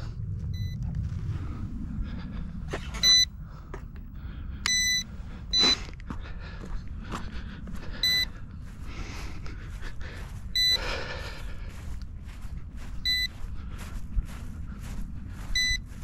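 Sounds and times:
wind: 0:00.0 - 0:16.0
high electronic beeps: 0:00.5 - 0:00.8, 0:03.0 - 0:03.3, 0:13.1 - 0:13.3, 0:15.6 - 0:15.8.

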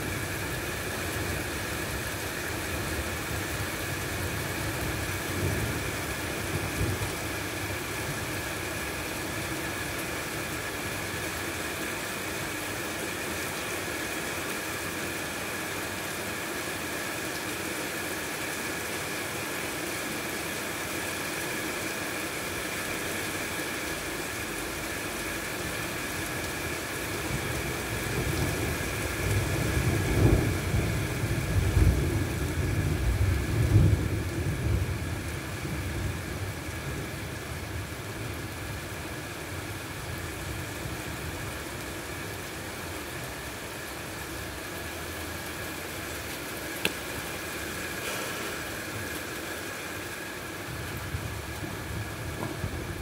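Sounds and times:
distant thunder rumble: 0:27.3 - 0:36.1.

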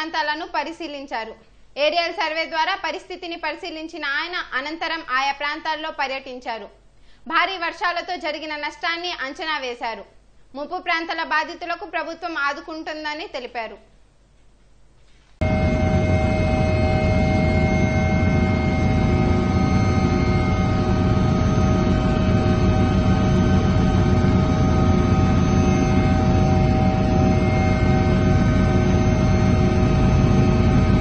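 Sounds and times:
helicopter drone inside cabin: 0:15.4 - 0:31.0
high turbine whine: 0:15.4 - 0:31.0.

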